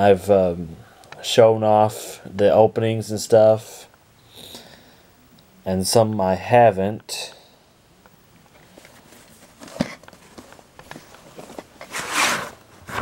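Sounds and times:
cardboard sleeve rustling slide: 11.4s - 13.0s.

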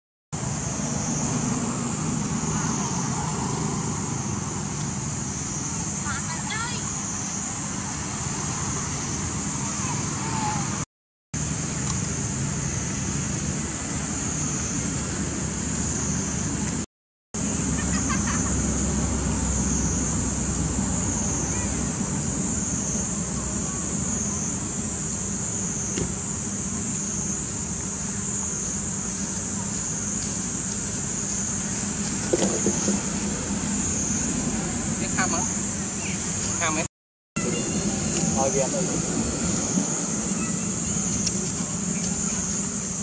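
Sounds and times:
distant road traffic rumble: 0.4s - 10.8s, 11.4s - 16.8s, 17.4s - 43.0s
high even hiss: 17.4s - 43.0s.

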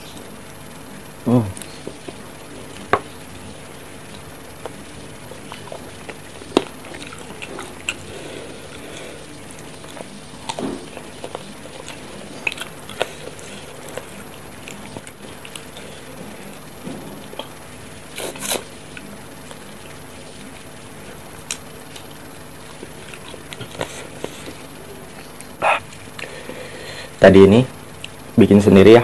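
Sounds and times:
chewing and sucking: 1.6s - 26.8s
slurping or biting: 18.1s - 18.7s.

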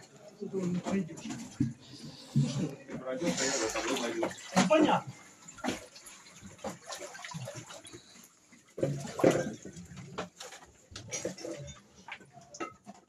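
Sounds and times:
plastic carriers knocking and rustling: 8.8s - 13.0s.

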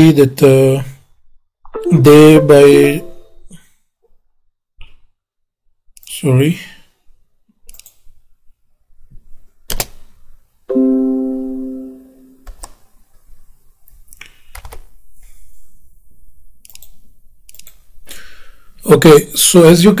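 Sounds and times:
computer notification chime: 1.8s - 3.3s, 10.7s - 12.4s
computer mouse clicks: 7.6s - 8.1s, 9.7s - 10.1s, 12.4s - 12.8s, 13.8s - 14.9s, 16.6s - 18.0s.

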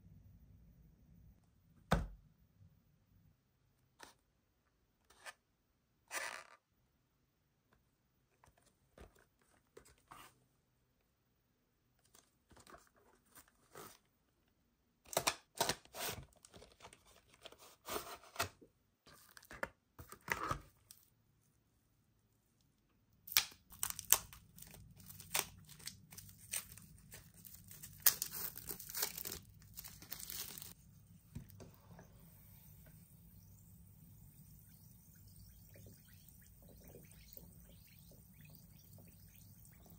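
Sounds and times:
plastic wrapping crinkling: 23.7s - 30.8s.

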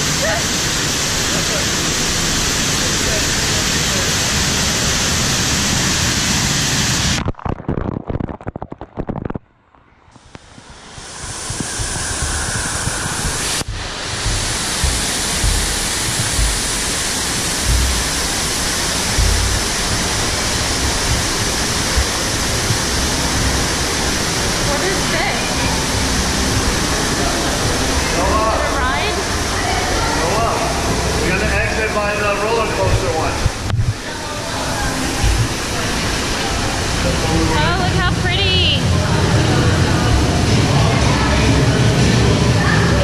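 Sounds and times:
rushing water: 0.0s - 7.6s, 10.2s - 43.0s
low thumps: 11.5s - 24.9s.

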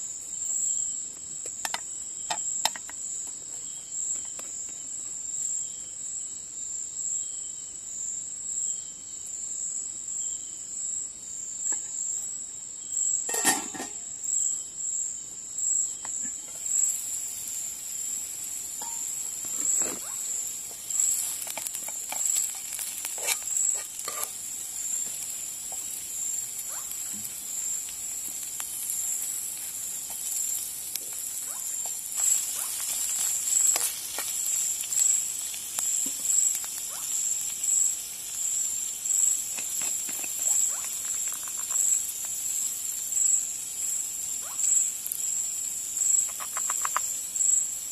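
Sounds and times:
onions sizzling in oil: 0.0s - 5.8s, 11.2s - 47.9s
crickets trilling: 0.0s - 47.9s
spoon stirring in pan: 18.8s - 26.0s, 28.3s - 36.2s, 39.6s - 42.0s.

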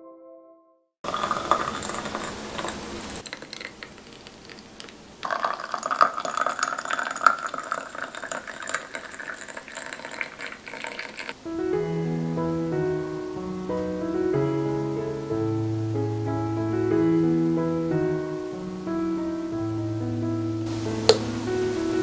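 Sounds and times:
juice pouring into a glass: 1.1s - 11.4s.

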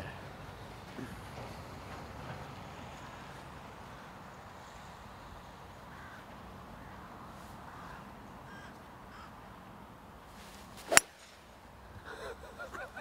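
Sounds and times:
golf club striking ball: 10.8s - 11.4s.

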